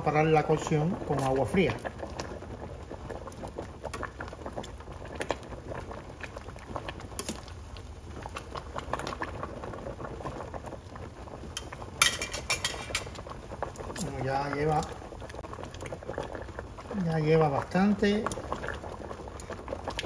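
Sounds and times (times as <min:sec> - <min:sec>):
water boiling in a metal pan: 0:00.0 - 0:20.0.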